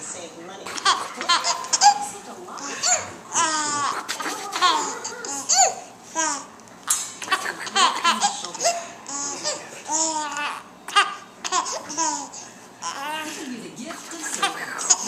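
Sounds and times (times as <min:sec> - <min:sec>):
baby laughing: 0:00.7 - 0:13.4, 0:14.3 - 0:15.0.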